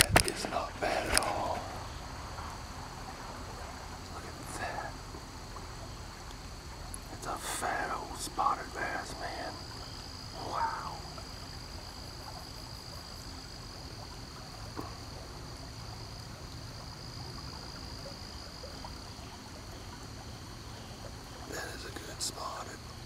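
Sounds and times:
low background rumble: 0.0 - 12.4
high-pitched insect drone: 7.2 - 13.6.

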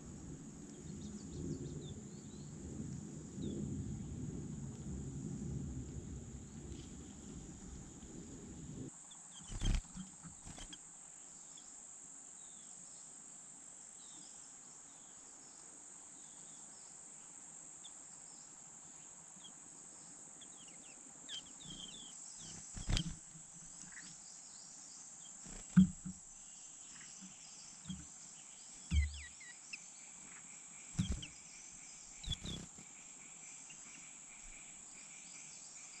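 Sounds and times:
steady high hiss: 5.9 - 36.0
bird chirps: 9.1 - 10.8, 20.4 - 24.2, 25.2 - 36.0
low thumps and splashes: 25.6 - 26.3.

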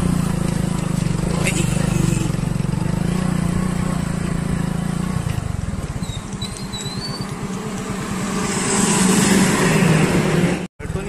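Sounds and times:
motorcycle engine running: 0.0 - 11.0
faint high wavering whistle: 6.0 - 7.3.

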